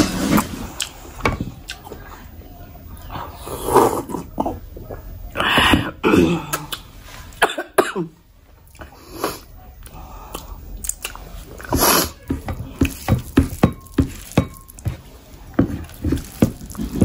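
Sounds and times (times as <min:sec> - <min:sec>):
wet chewing and lip smacking: 0:09.8 - 0:11.7.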